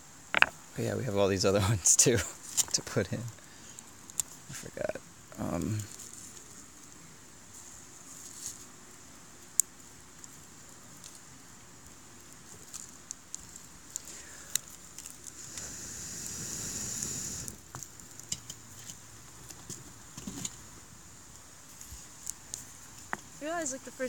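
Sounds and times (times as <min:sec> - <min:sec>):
campfire crackling: 0:00.0 - 0:24.0
rushing hiss: 0:14.0 - 0:14.6, 0:15.2 - 0:17.9.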